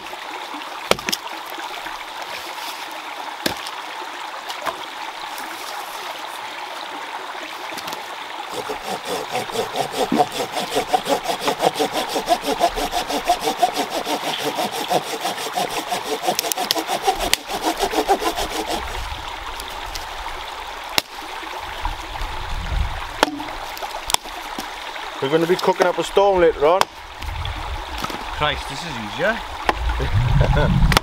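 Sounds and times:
stream rushing: 0:00.0 - 0:30.5
hand saw cutting branch: 0:08.5 - 0:20.0
dead sticks snapping: 0:16.3 - 0:17.4.

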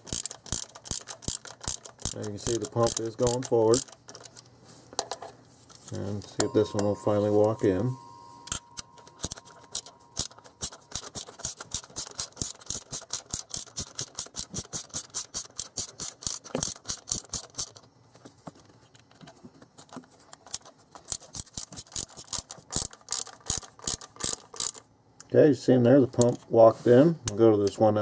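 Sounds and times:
socket ratchet clicking: 0:00.0 - 0:04.4, 0:08.4 - 0:17.8, 0:20.4 - 0:24.8.

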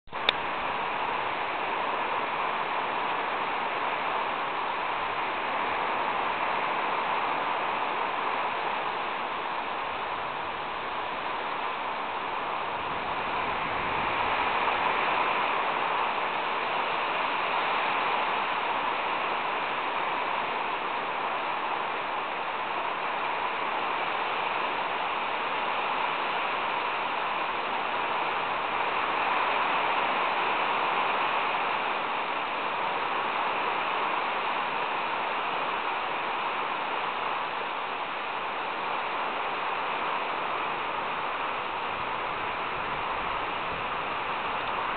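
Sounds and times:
gusty wind: 0:00.1 - 0:44.9
heavy rain pouring: 0:00.1 - 0:44.9.

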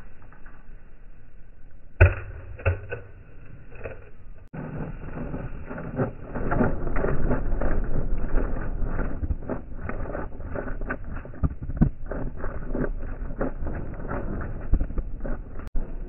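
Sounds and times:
dog crunching kibble in metal bowl: 0:04.6 - 0:15.7.

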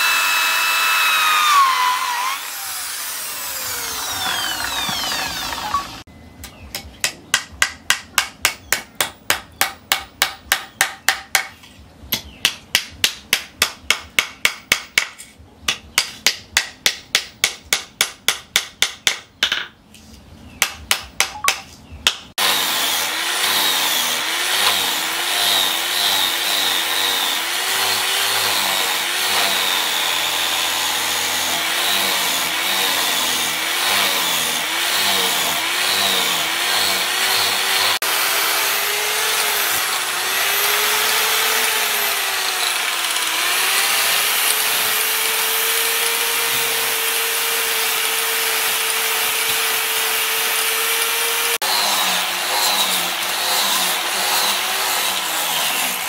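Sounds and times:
angle grinder sanding wood: 0:00.0 - 0:06.1, 0:22.4 - 0:56.0
hammer striking rapidly: 0:07.0 - 0:11.5.

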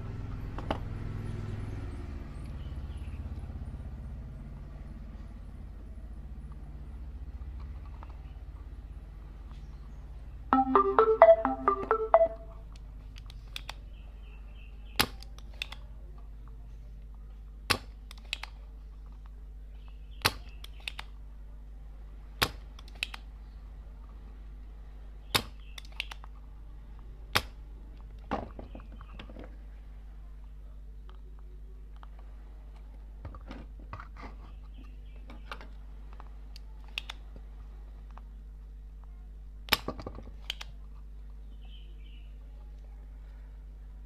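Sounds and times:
electronic tones: 0:10.5 - 0:12.6.

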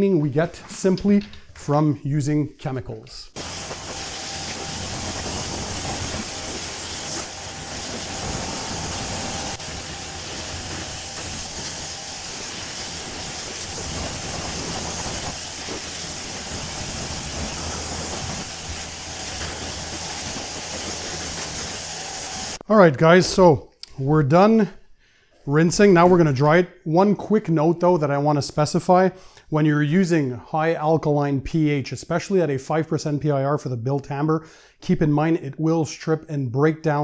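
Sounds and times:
pressure washer motor humming: 0:03.4 - 0:22.6
pressure washer water jet hissing: 0:03.4 - 0:22.6.

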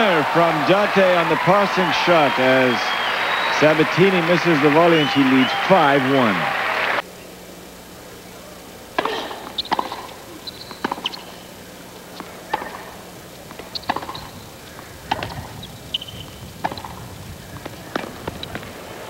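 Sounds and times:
tennis ball hit by rackets: 0:08.9 - 0:11.5, 0:12.1 - 0:18.8.

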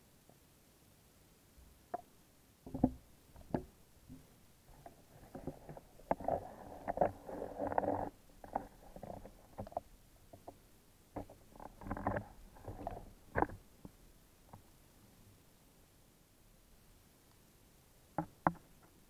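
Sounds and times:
muffled underwater knocks and clicks: 0:01.9 - 0:14.7, 0:18.1 - 0:19.0.

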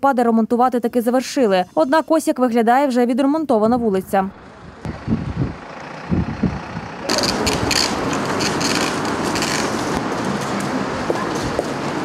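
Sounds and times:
low thumps: 0:03.6 - 0:07.7
road-works machinery clatter: 0:03.6 - 0:12.0.

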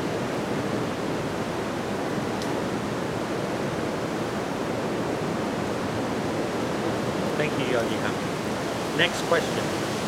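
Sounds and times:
steady rushing outdoor noise: 0:00.0 - 0:10.0.

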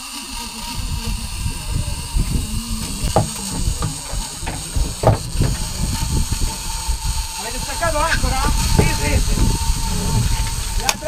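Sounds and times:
steady high hum: 0:00.0 - 0:11.0
low thumps and knocks: 0:00.7 - 0:11.0
short higher knock: 0:02.6 - 0:06.6.

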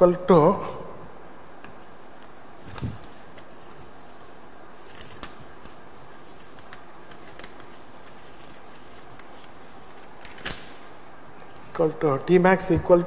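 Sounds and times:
paper rustling: 0:01.6 - 0:12.0.

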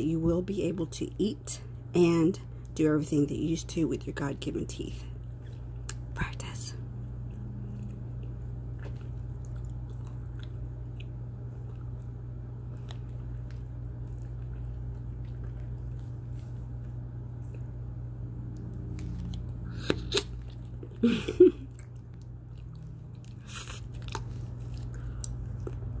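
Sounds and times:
gum chewing mouth clicks: 0:21.8 - 0:25.9.

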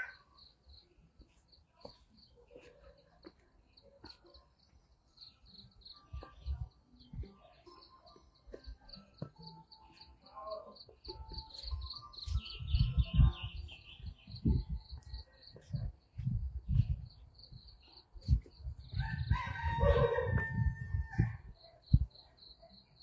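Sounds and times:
birds chirping: 0:00.0 - 0:19.5.

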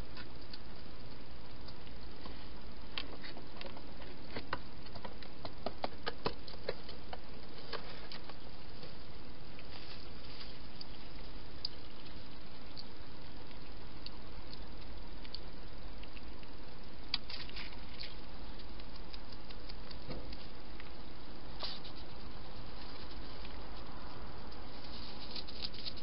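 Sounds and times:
steady background hiss: 0:00.0 - 0:26.0
hedgehog clicks and taps: 0:03.0 - 0:07.2.

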